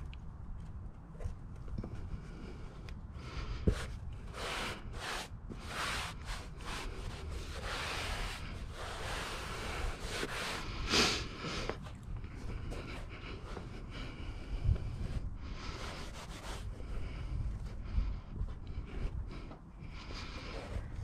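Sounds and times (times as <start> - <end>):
hands brushing carpet: 3.6 - 13.7, 15.6 - 17.2.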